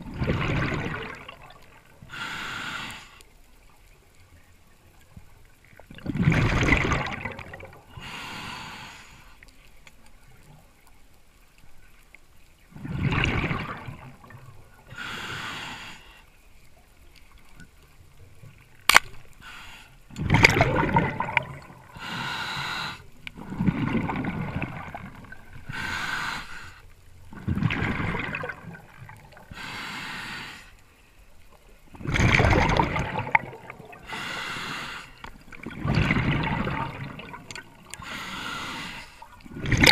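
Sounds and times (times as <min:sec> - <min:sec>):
scuba regulator breathing: 0:02.0 - 0:03.3, 0:07.9 - 0:09.4, 0:14.8 - 0:16.3, 0:19.3 - 0:20.1, 0:21.8 - 0:23.6, 0:25.5 - 0:27.0, 0:29.4 - 0:31.0, 0:33.9 - 0:35.4, 0:37.2 - 0:39.9
speargun firing click: 0:18.9 - 0:19.2.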